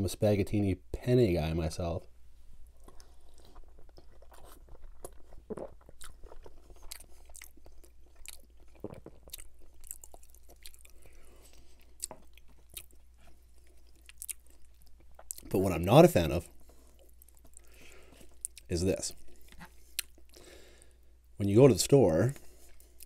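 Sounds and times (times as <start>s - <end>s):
chewing food: 2.7s - 15.6s, 16.4s - 20.5s
mouth clicks and smacks: 19.4s - 20.4s.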